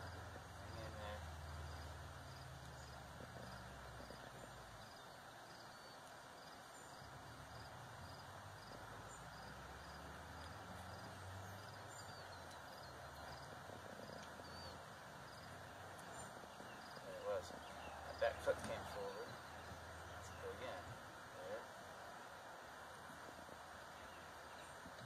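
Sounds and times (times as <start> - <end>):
low steady hiss: 0.0 - 25.0
bird calls: 2.6 - 7.2, 10.5 - 21.7, 23.8 - 25.0.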